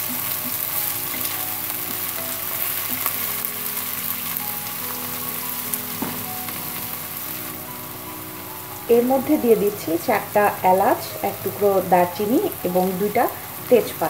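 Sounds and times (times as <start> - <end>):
onions sizzling in oil: 0.0 - 14.0
wooden spatula knocking pan: 5.9 - 6.6.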